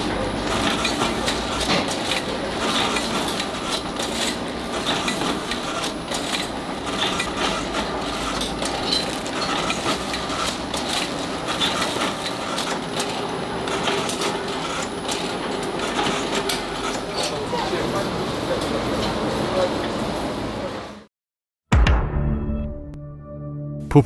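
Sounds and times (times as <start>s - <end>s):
wrapping machine clattering: 0.0s - 17.4s.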